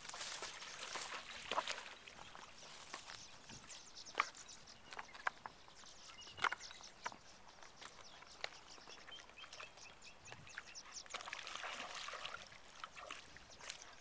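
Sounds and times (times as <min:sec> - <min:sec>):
swallows twittering: 0:00.4 - 0:14.0.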